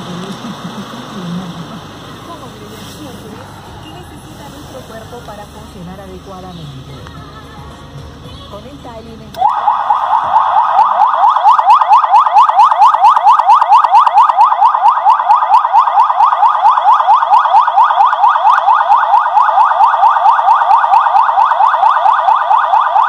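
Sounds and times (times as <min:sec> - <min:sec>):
emergency siren fast yelp: 0:09.4 - 0:23.0.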